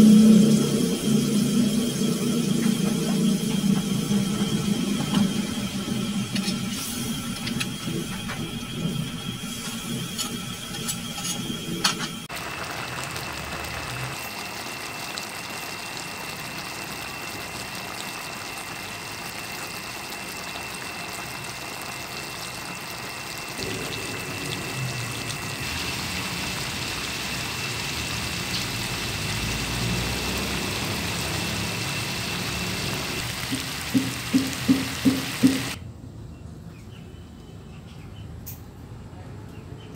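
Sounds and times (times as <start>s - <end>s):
sauce bubbling in a pan: 12.2s - 35.8s.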